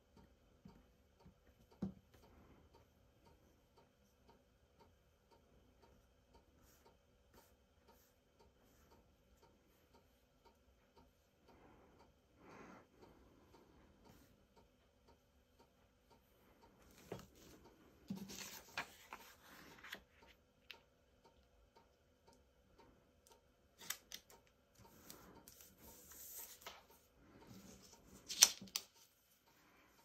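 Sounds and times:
paper rustling: 18.1 - 20.1, 27.6 - 29.0.

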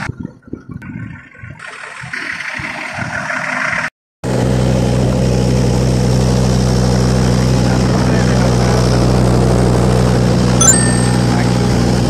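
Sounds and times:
wind buffeting microphone: 0.0 - 1.6.

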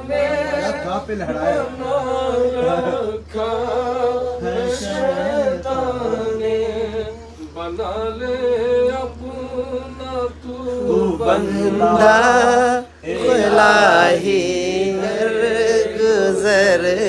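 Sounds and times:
man singing unaccompanied: 0.0 - 17.0.

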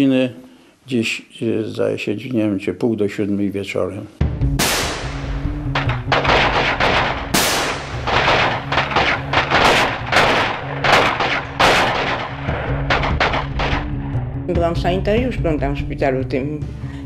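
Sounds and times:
small-arms gunfire: 4.6 - 14.0.

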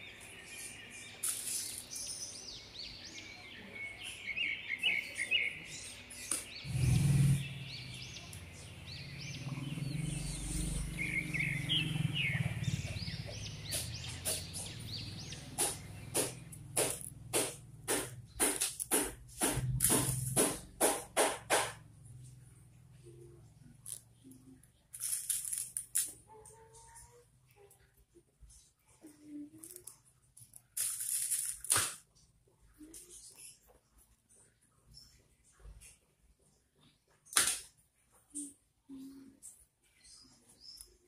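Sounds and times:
small birds chirping: 0.0 - 37.4, 38.2 - 41.0
sharp evenly spaced taps: 12.9 - 21.8.

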